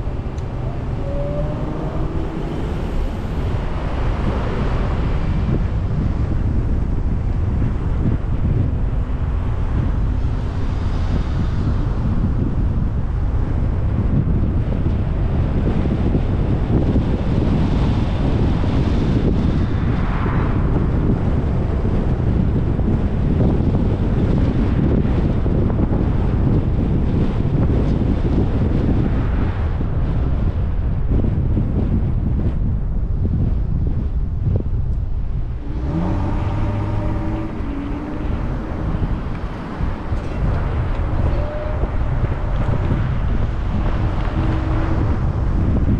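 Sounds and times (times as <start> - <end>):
car engine accelerating: 0.0 - 8.2, 34.9 - 45.9
road noise from moving car: 0.0 - 45.9
wind rumbling on microphone: 0.0 - 45.9.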